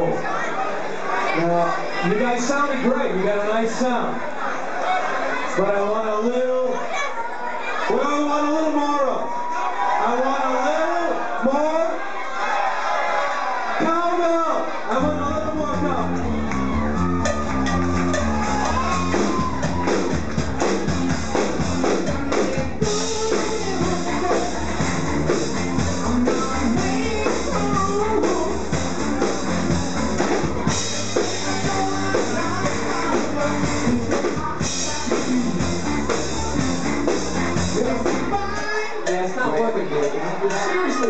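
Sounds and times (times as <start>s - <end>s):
electric guitars and bass: 15.0s - 38.6s
drum kit beat: 15.1s - 41.0s
person singing: 22.3s - 29.8s, 30.9s - 39.2s.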